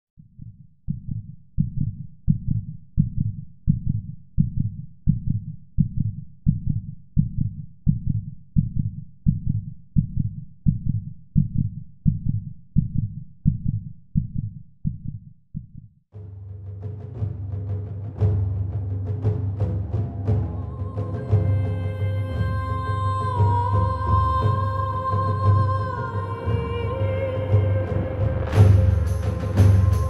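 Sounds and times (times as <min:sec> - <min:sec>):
heartbeat thumps: 0:00.2 - 0:15.9.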